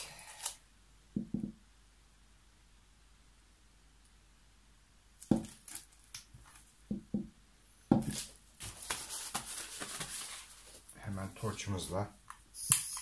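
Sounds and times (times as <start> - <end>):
objects knocking on a table: 1.2 - 1.6, 5.3 - 5.5, 6.9 - 7.3, 7.9 - 8.1
rustling and clattering: 7.9 - 10.9.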